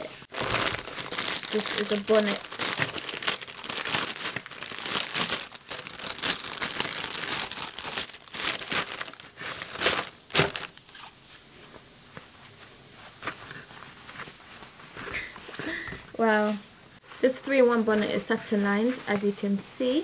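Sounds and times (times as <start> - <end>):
plastic bag crinkling: 0.3 - 11.0.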